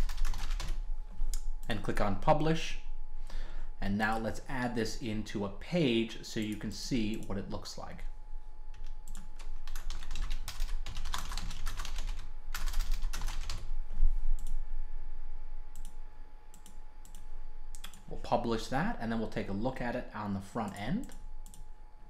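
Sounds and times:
typing on keyboard: 0:00.0 - 0:00.8, 0:08.8 - 0:13.6.

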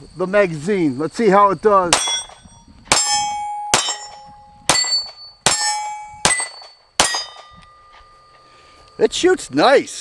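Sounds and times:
pistol shots: 0:01.9 - 0:07.5
steel target ringing: 0:01.9 - 0:09.3.

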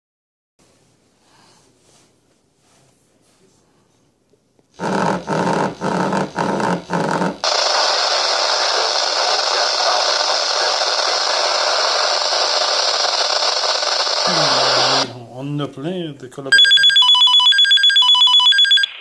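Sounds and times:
radio static hiss: 0:04.8 - 0:15.3
pager alert beeps: 0:16.5 - 0:19.0.

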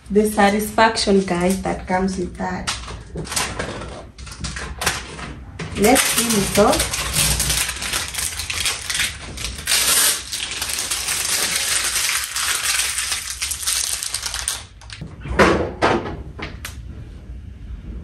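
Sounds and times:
plastic crinkles: 0:00.4 - 0:04.0, 0:05.8 - 0:15.0
plastic film peeling: 0:05.8 - 0:15.0.

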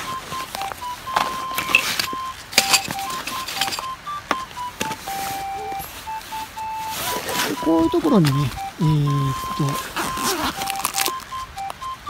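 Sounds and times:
whistle-like tones: 0:00.0 - 0:12.0
light clinks of small items: 0:01.6 - 0:04.0
rustling of nylon sacks: 0:05.0 - 0:11.2.

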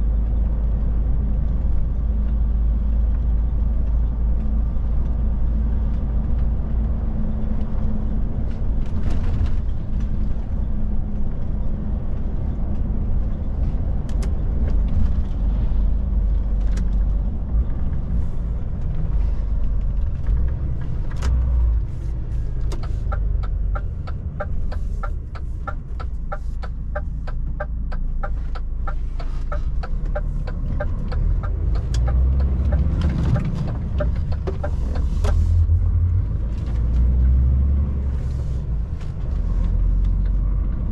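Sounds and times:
truck diesel engine rumbling: 0:00.0 - 0:40.9
turn indicator ticking: 0:22.6 - 0:36.4.

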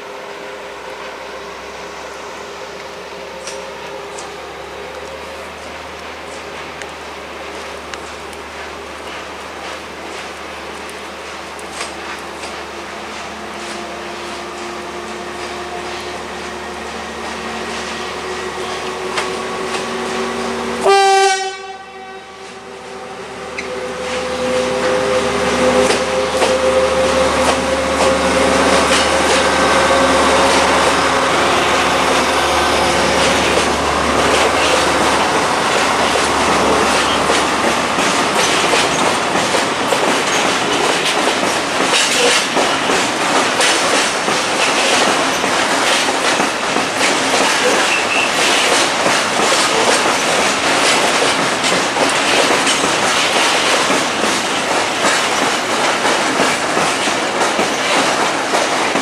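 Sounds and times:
diesel locomotive engine: 0:00.0 - 0:59.0
locomotive horn blast: 0:17.6 - 0:35.4
wagon wheels clattering on rails: 0:34.3 - 0:59.0.

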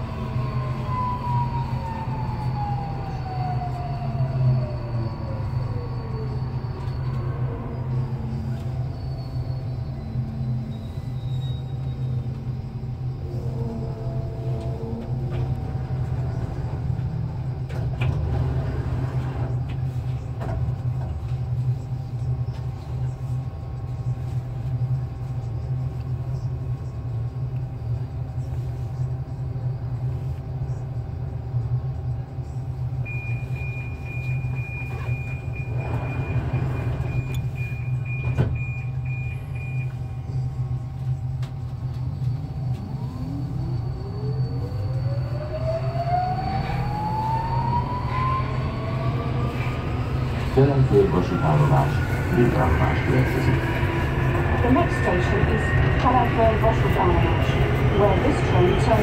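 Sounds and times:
train motor whine gliding in pitch: 0:00.0 - 0:19.7, 0:34.3 - 0:59.0
steady high tone: 0:42.7 - 0:59.0.

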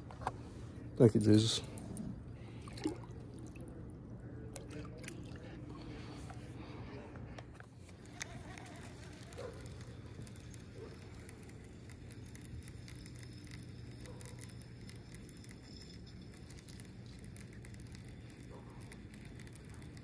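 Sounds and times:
low steady hum: 0:00.0 - 0:20.0
fishing reel whirring and ticking: 0:07.9 - 0:20.0.

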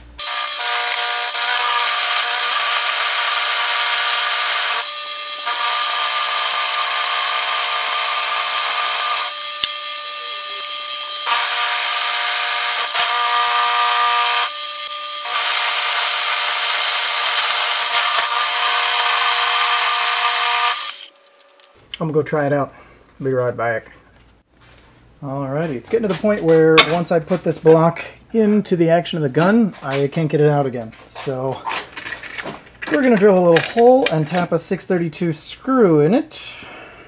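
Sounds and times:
milling spindle whine: 0:00.2 - 0:21.7.

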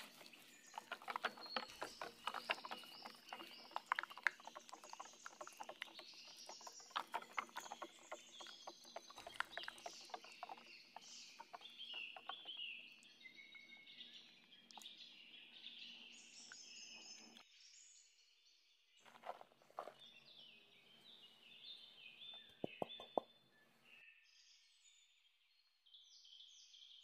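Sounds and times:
spatula stirring batter in bowl: 0:00.0 - 0:12.6
birds chirping: 0:00.0 - 0:17.4, 0:19.0 - 0:24.6.

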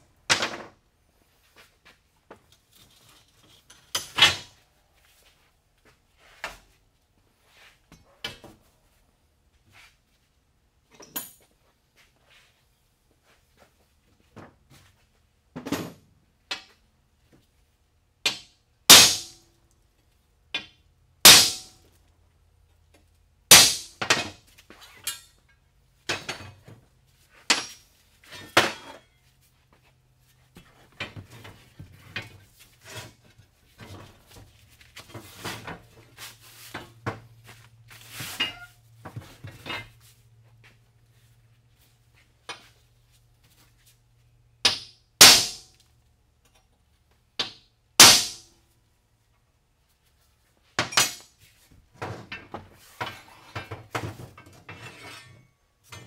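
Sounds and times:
steel leaves clattering and scraping: 0:02.4 - 0:04.6, 0:23.5 - 0:29.6, 0:30.2 - 0:40.2, 0:50.8 - 0:56.0
metal-on-metal knocks and clanks: 0:52.0 - 0:56.0.

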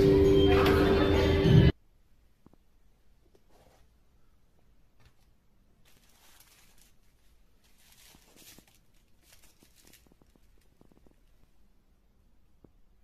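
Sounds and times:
bubble wrap rustling and crinkling: 0:05.1 - 0:11.5.

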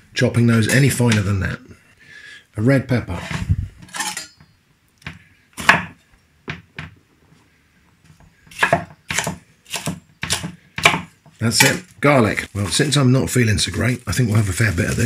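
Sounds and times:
knife chopping on wooden board: 0:05.1 - 0:06.0, 0:08.5 - 0:11.8.

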